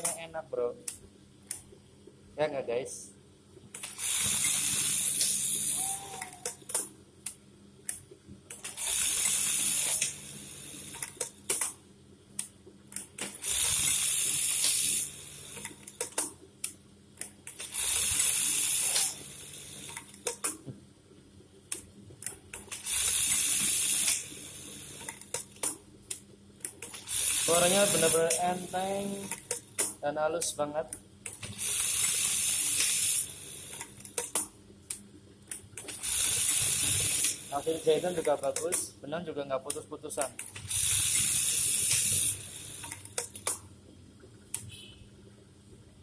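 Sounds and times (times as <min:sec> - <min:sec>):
sewing machine stitching: 0:26.9 - 0:29.8.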